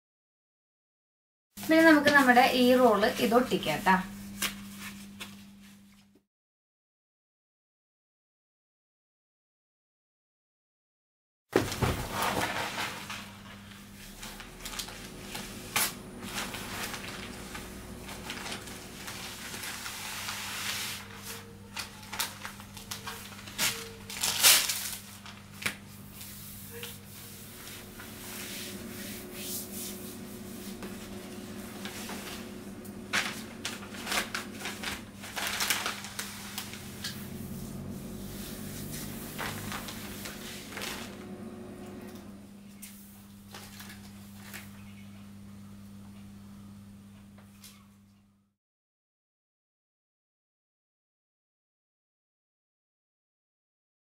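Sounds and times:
plastic sheet crinkling: 11.6 - 41.5, 42.8 - 44.9
steady low hum: 12.0 - 48.5
hands rubbing vinyl flat: 25.5 - 41.3.

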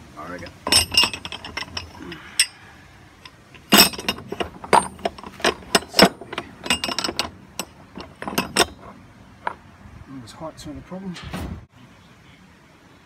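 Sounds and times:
metal castings and rods clinking: 0.3 - 2.6, 3.2 - 9.6.

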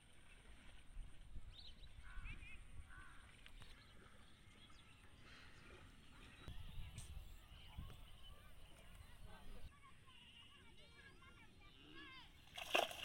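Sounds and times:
distant bird calls: 1.4 - 9.7.

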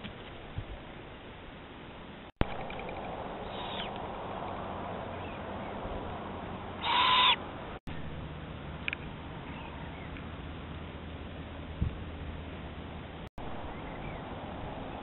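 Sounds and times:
owl calling: 3.4 - 4.0, 6.8 - 7.4.

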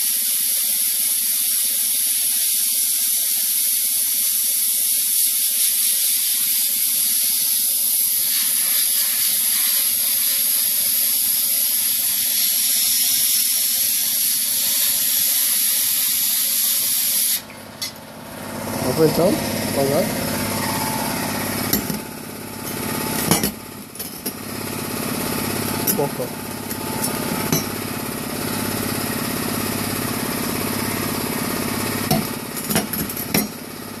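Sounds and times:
sandblasting gun hiss: 0.0 - 17.5
machinery drone: 18.3 - 23.9.

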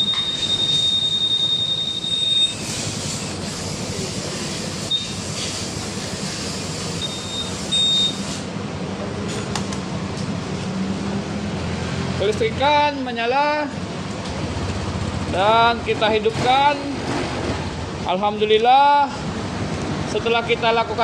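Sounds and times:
alarm buzzer high tone: 0.0 - 2.7, 4.9 - 5.3, 7.0 - 8.4
short alarm beeps: 0.0 - 2.7, 4.9 - 5.3, 7.0 - 8.3.

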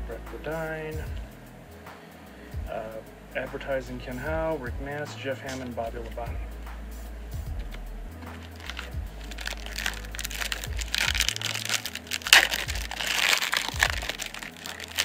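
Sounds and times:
foil wrapper crinkling and tearing: 8.3 - 15.0.

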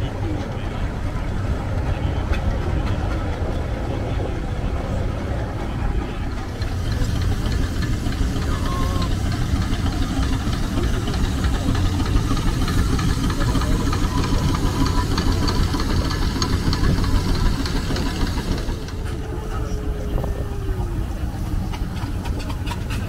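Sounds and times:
steam engine exhaust beat: 0.0 - 23.0
steam hiss: 6.5 - 19.2.

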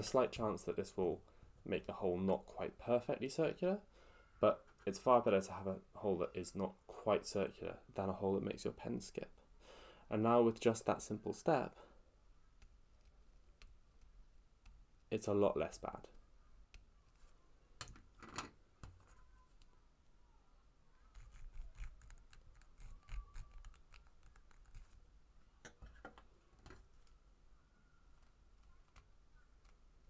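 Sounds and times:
needle file rasping on plastic: 21.1 - 25.0.

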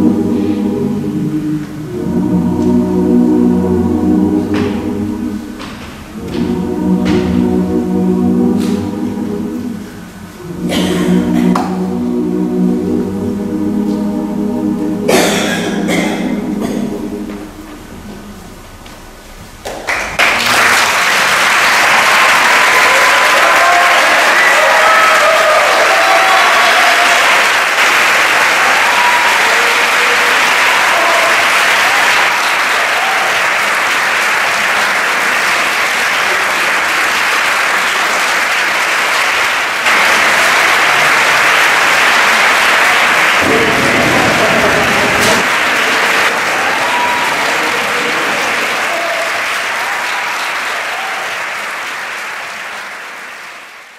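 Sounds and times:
large audience applauding: 19.6 - 53.9.

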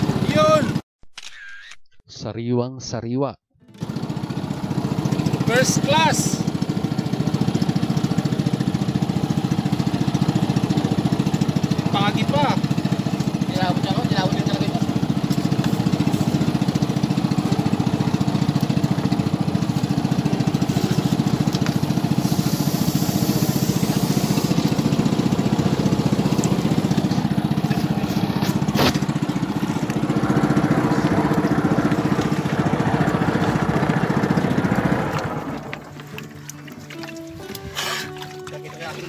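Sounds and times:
small engine running: 0.0 - 0.8, 3.7 - 39.0
sharp click: 1.1 - 2.0.

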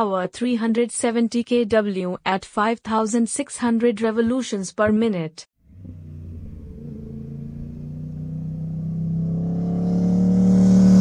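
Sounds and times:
vehicle engine running: 5.6 - 11.0.

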